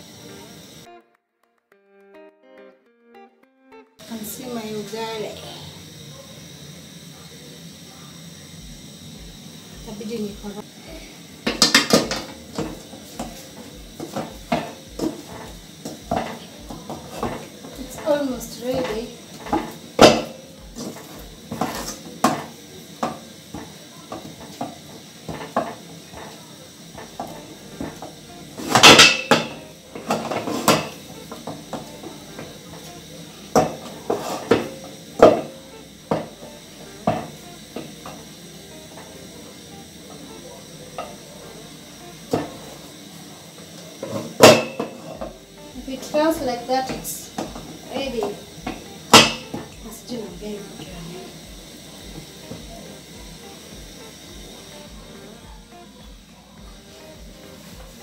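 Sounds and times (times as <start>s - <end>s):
wooden spoon knocking a metal pot: 14.0s - 26.3s, 27.0s - 31.9s, 46.8s - 49.8s
spoon scraping a metal pot: 33.6s - 34.7s.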